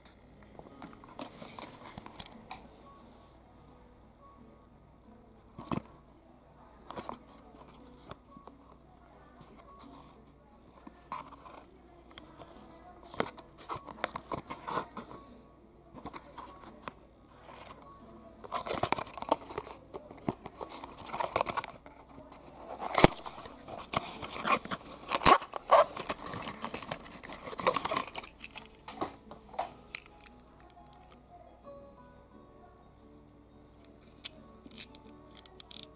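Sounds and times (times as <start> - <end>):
cardboard packaging rustling: 18.5 - 30.2.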